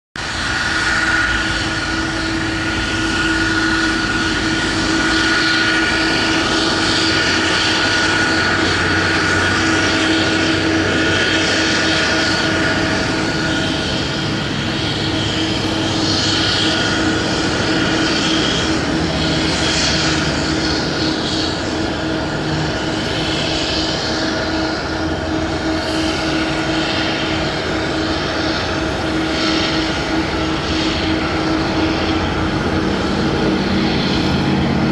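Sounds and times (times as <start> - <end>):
high engine whine: 0.2 - 34.9
jet engines at low thrust: 0.2 - 34.9.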